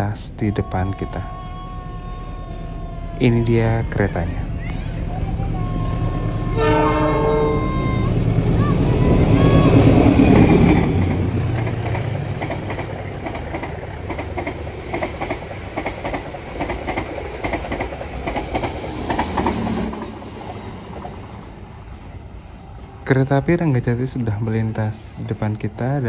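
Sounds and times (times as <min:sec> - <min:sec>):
diesel locomotive passing: 0:00.0 - 0:26.0
train wheels clickety-clack: 0:08.1 - 0:21.4.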